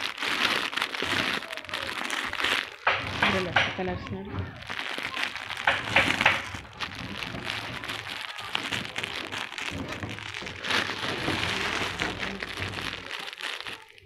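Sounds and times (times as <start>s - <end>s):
plastic packets crinkling: 0.0s - 14.0s.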